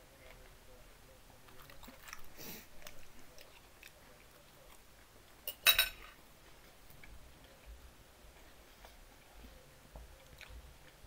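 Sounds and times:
chewing with wet mouth clicks: 0:01.4 - 0:05.4, 0:10.0 - 0:11.0.

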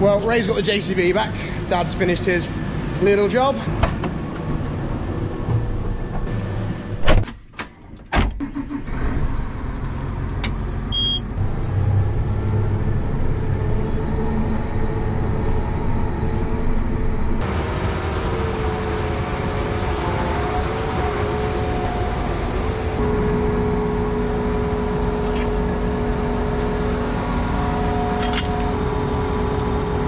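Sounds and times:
tractor door slamming shut: 0:07.0 - 0:07.4, 0:08.0 - 0:08.4
tractor diesel engine running: 0:08.5 - 0:30.0.

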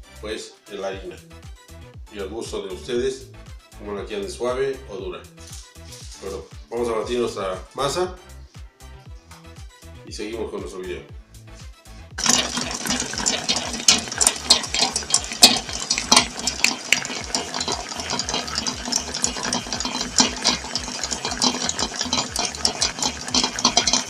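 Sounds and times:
dough knocking in mixer bowl: 0:12.2 - 0:24.0
stand mixer motor hum: 0:12.2 - 0:24.0.

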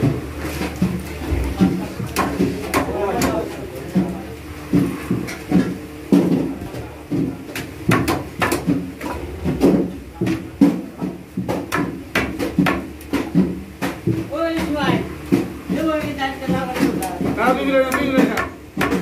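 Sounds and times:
blade chopping fish: 0:00.5 - 0:04.1.

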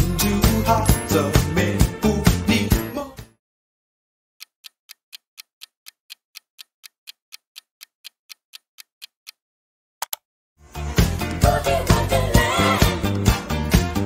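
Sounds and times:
timer ticking: 0:04.4 - 0:09.4.

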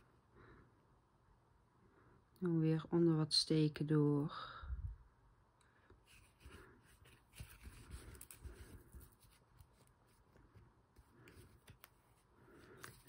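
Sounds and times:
needle and thread through cloth: 0:06.0 - 0:13.0.

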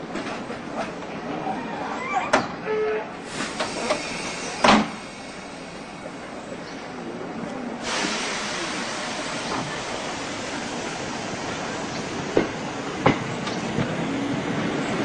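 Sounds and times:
train hiss and rumble: 0:03.1 - 0:15.0.

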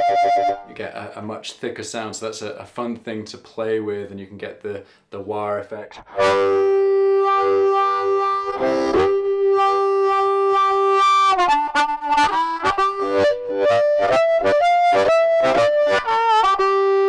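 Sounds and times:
overdriven amplified harmonica: 0:00.0 - 0:00.7, 0:06.0 - 0:17.0.

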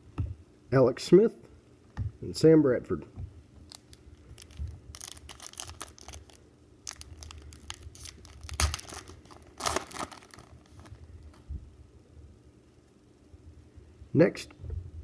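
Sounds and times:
card pack wrapper tearing: 0:03.7 - 0:11.0.

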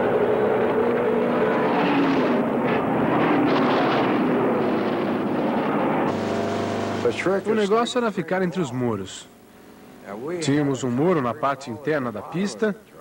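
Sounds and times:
racing car engines passing: 0:00.0 - 0:07.4.

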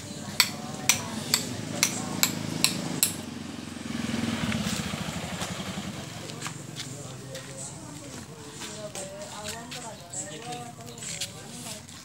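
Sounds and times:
low engine hum: 0:00.0 - 0:09.2.

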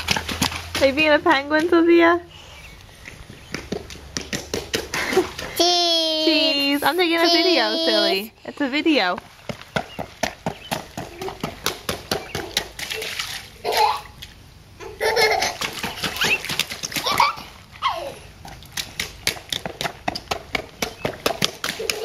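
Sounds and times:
rain boots splashing in puddles: 0:00.0 - 0:02.0, 0:06.4 - 0:14.5, 0:15.2 - 0:22.0
children laughing: 0:04.9 - 0:08.3, 0:11.0 - 0:14.2, 0:14.8 - 0:18.3, 0:21.6 - 0:22.0
children's voices: 0:05.5 - 0:08.4.

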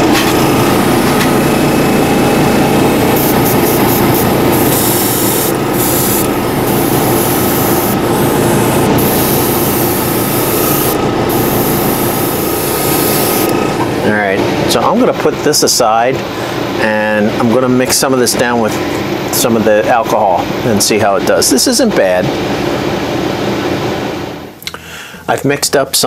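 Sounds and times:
steady machine drone: 0:00.0 - 0:24.5
airbrush air hiss: 0:02.8 - 0:13.8.

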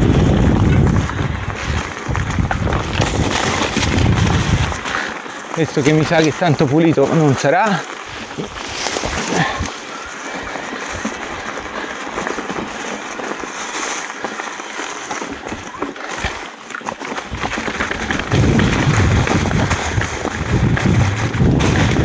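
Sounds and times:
bike rattling: 0:00.0 - 0:22.0
tyres crunching over stones: 0:00.0 - 0:22.0
low rumble: 0:18.2 - 0:22.0.

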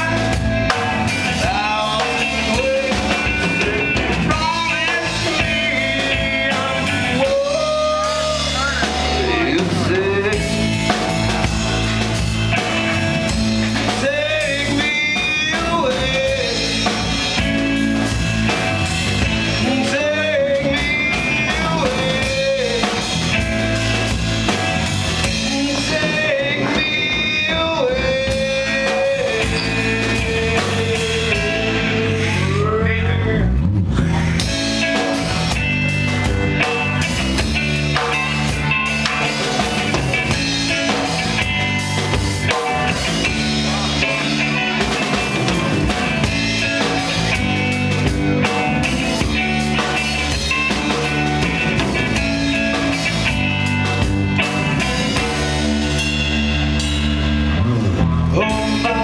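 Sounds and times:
blues rock band playing: 0:00.0 - 0:59.0.

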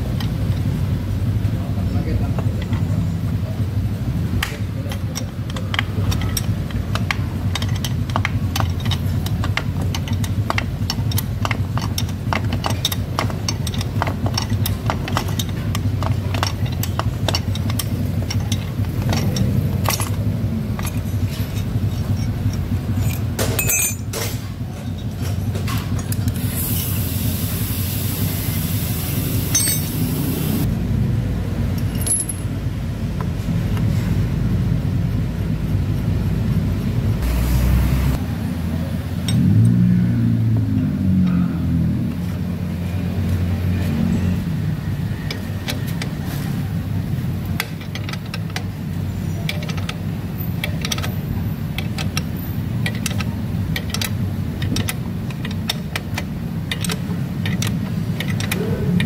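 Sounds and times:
steady low hum: 0:00.0 - 0:59.0
metallic wrench clicks: 0:05.0 - 0:24.0, 0:49.4 - 0:59.0
hiss: 0:26.4 - 0:30.6.

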